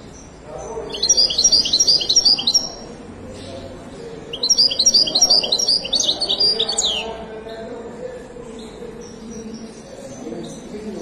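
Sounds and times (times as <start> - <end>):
songbird twittering: 0.0 - 3.7, 4.3 - 7.2.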